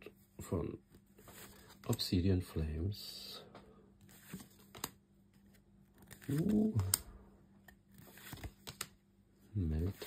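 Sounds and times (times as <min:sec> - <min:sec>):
cards flipping with clicks and rustles: 0:04.0 - 0:09.0.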